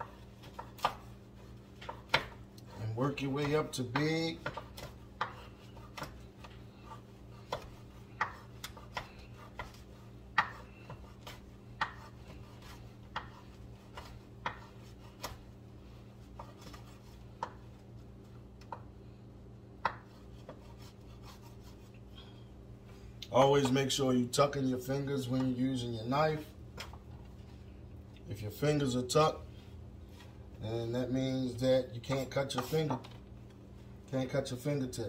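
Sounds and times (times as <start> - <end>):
knife cutting bread on board: 0.0 - 17.8, 19.8 - 21.9
faint steady hum: 0.0 - 35.0.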